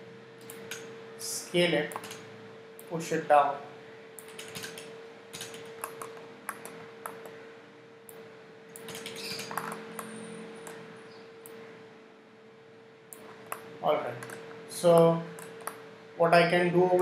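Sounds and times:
faint hum: 0.0s - 17.0s
mouse and keyboard clicks: 1.9s - 2.2s, 8.8s - 10.8s.

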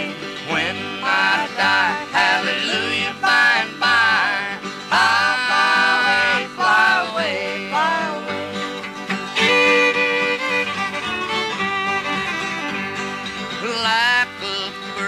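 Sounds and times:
country music with plucked strings: 0.0s - 15.0s.

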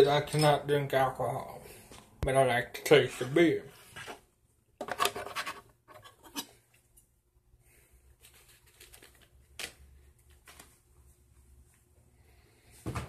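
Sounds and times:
scratching and rustling of small objects: 4.8s - 6.6s, 8.2s - 10.7s.

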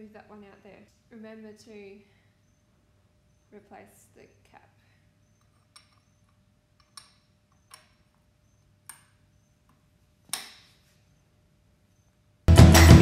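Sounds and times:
music: 12.5s - 13.0s.

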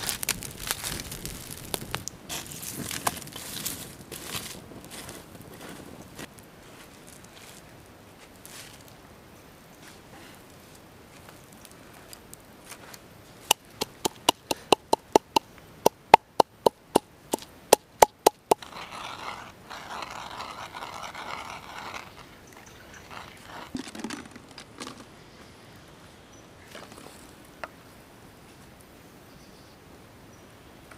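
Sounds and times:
pestle pounding in wooden mortar: 13.5s - 18.9s
pestle scraping in bowl: 13.5s - 24.9s.

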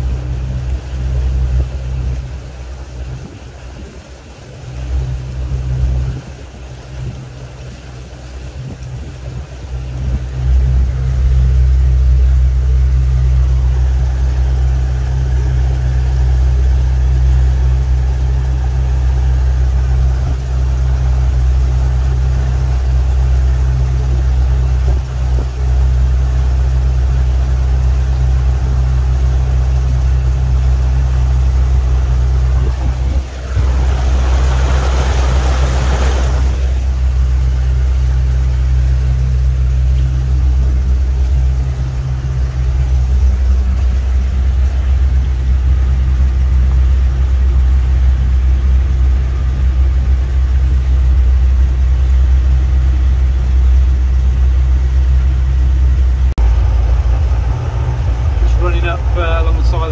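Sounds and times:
boat engine droning: 0.0s - 59.9s
rushing noise: 31.6s - 38.0s, 56.4s - 59.9s.

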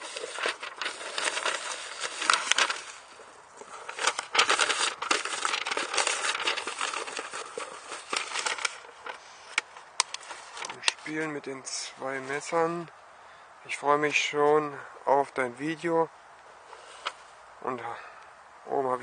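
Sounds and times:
paper and cardboard rustling: 0.0s - 12.8s, 16.7s - 17.3s.

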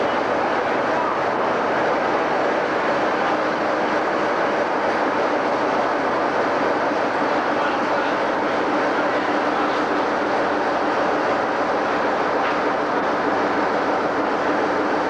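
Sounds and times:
diesel locomotive engine idling: 0.0s - 15.0s.

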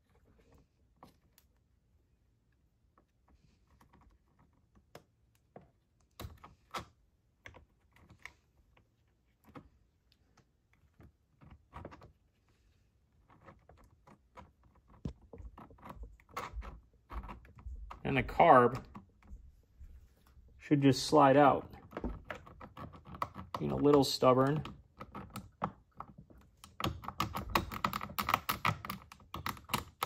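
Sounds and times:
hands clicking small plastic parts: 21.8s - 30.0s.

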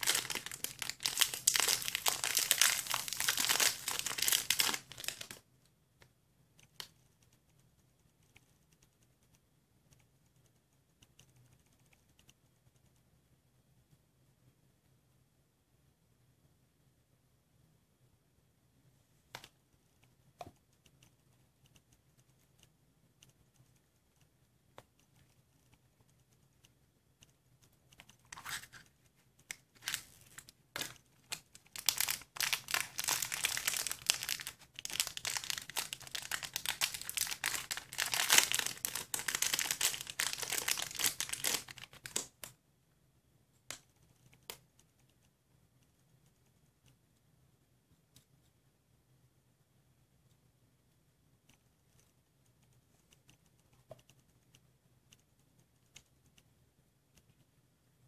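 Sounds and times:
plastic wrapper crinkling: 0.0s - 5.4s, 29.7s - 42.3s.

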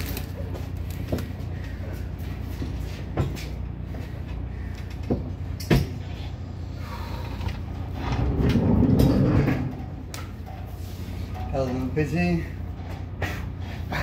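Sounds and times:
steady low hum: 0.0s - 14.0s
low booming rumble: 7.6s - 10.4s.

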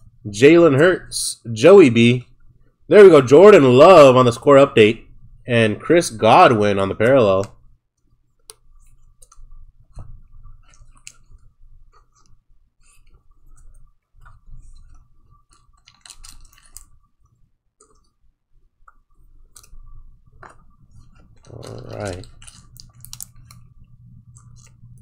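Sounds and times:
faint high hum: 0.0s - 25.0s
plastic and card rustling: 8.4s - 18.2s, 19.3s - 25.0s.

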